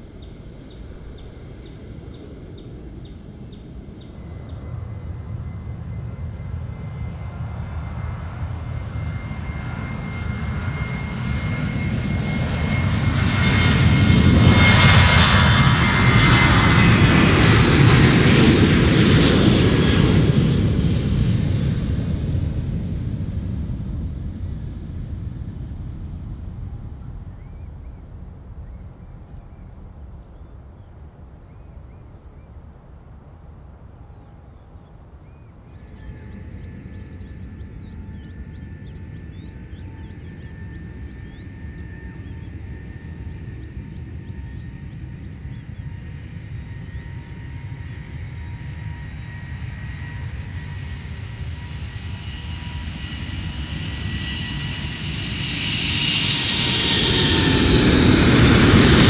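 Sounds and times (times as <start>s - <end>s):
distant jet climbing away: 0.0s - 21.7s
jet engines at takeoff power: 0.0s - 59.0s
high steady whine: 24.9s - 51.1s.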